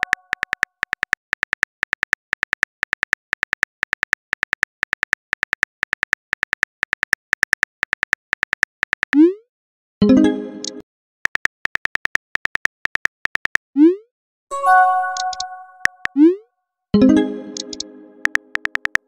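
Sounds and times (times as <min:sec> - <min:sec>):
keyboard typing clicks: 0:00.0 - 0:01.6, 0:10.5 - 0:13.6, 0:14.6 - 0:16.2, 0:17.0 - 0:19.0.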